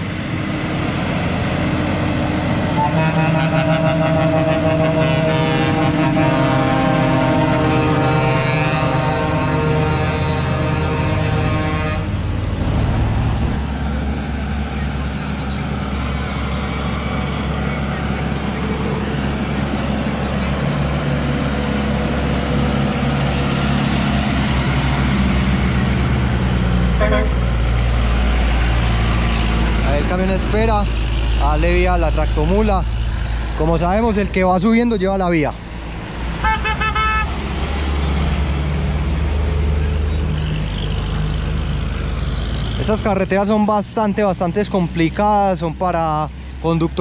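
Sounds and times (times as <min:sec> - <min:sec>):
truck diesel engine passing: 0:00.0 - 0:47.0
truck horn toot: 0:02.7 - 0:12.3, 0:27.0 - 0:27.4, 0:36.4 - 0:37.4.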